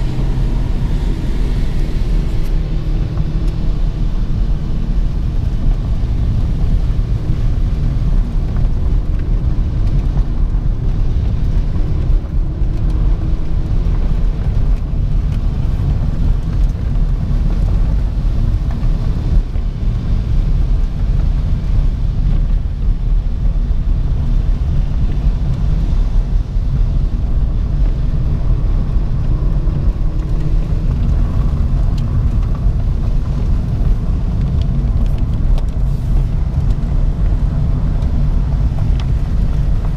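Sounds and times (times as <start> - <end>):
engine and tyre rumble in car: 0.0 - 39.9.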